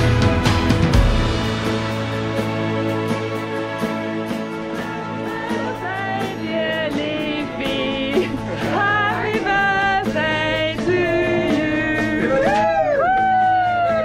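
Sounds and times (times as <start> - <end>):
song with singing voice: 4.9 - 14.0.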